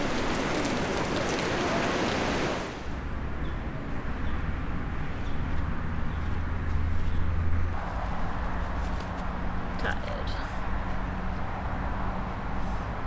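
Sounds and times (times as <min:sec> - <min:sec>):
shower water splashing on paving: 0:00.0 - 0:02.9.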